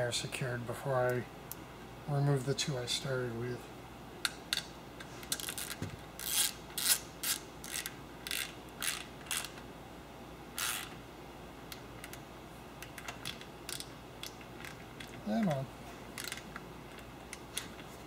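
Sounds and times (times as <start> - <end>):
hand ratchet clicking: 5.3 - 9.6, 12.9 - 15.2, 16.2 - 16.4.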